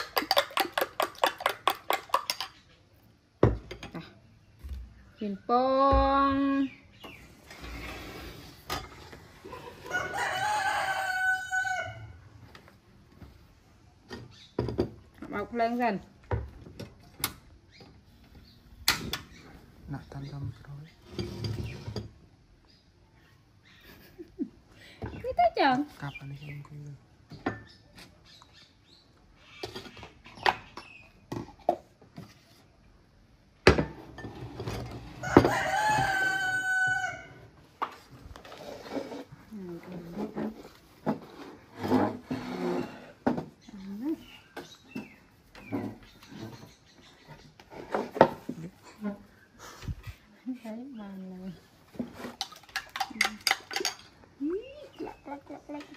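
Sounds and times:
rooster crowing: 9.8s - 12.2s, 35.2s - 37.5s.

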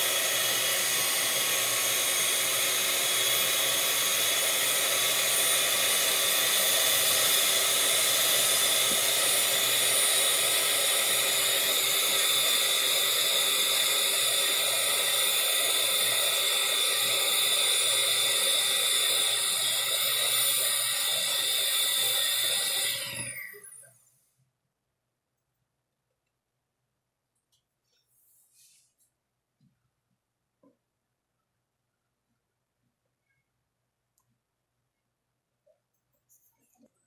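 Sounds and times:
electric hand mixer running: 0.0s - 23.9s.

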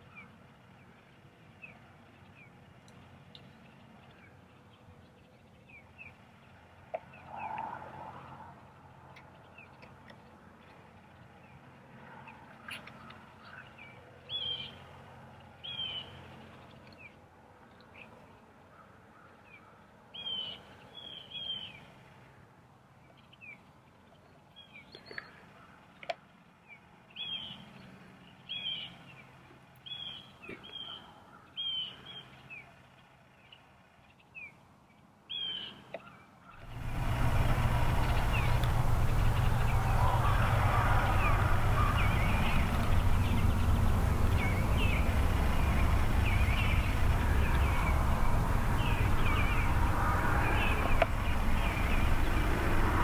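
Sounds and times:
small birds chirping: 9.1s - 22.0s, 23.0s - 53.0s
low rushing noise: 36.6s - 53.0s.

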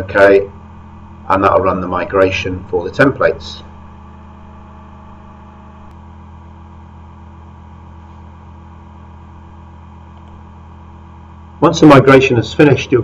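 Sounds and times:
faint constant tones: 0.0s - 13.0s
low background hum: 0.0s - 13.0s.

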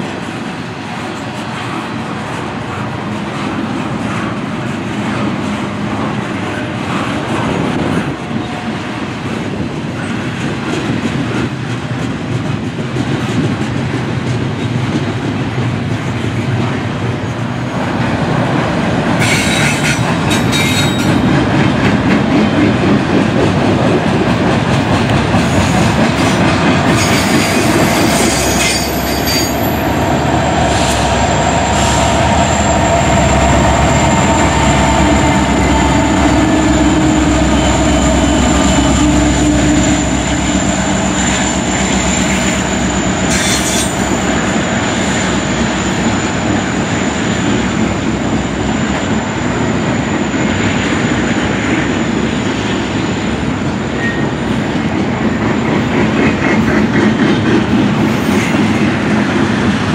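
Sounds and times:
diesel locomotive engine rumble: 0.0s - 59.9s
train wheels clattering on rails: 0.0s - 59.9s
train wheels squealing: 19.2s - 21.2s, 25.6s - 30.0s, 30.7s - 51.4s, 54.0s - 54.5s
locomotive high whine: 23.9s - 55.8s.

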